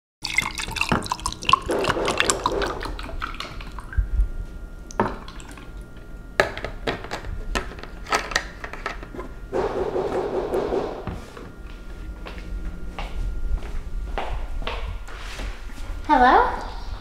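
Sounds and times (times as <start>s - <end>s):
liquid pouring over ice: 0.2s - 3.9s.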